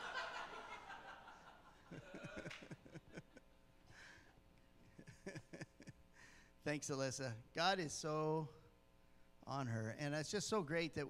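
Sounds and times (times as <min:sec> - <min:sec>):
audience laughter: 0:00.0 - 0:03.4.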